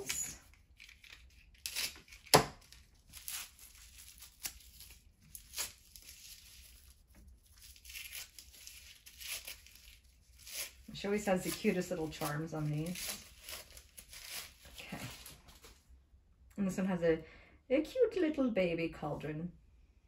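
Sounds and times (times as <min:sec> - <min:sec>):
wrapping tearing and crinkling: 0:00.0 - 0:15.8.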